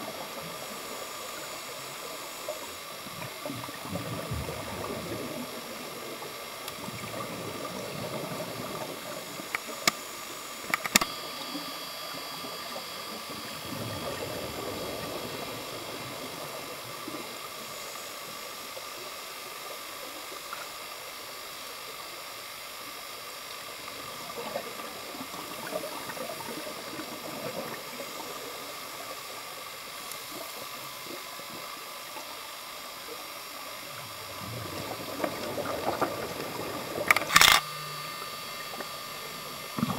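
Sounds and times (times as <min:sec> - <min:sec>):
underwater exhaled bubbles: 0:00.0 - 0:20.9, 0:23.7 - 0:39.9
steady hiss: 0:00.0 - 0:39.9
sharp clicks: 0:10.6 - 0:11.1, 0:37.0 - 0:37.7.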